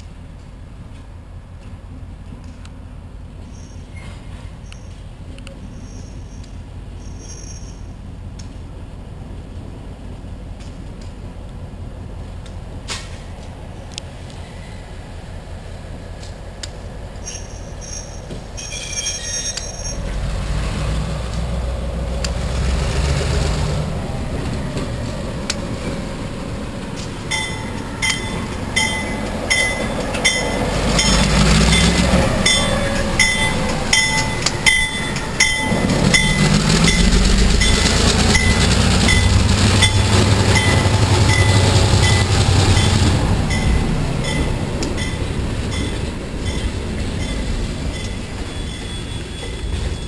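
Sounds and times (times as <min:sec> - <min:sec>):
diesel locomotive engine rumbling: 0:00.0 - 0:50.0
train wheels clicking over rail joints: 0:12.3 - 0:14.5, 0:16.0 - 0:50.0
bell ringing: 0:27.3 - 0:50.0.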